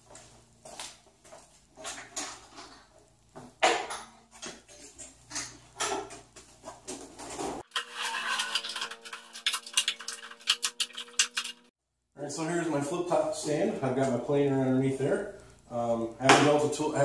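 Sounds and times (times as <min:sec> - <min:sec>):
tool stand clunking and rattling: 0:01.8 - 0:07.6.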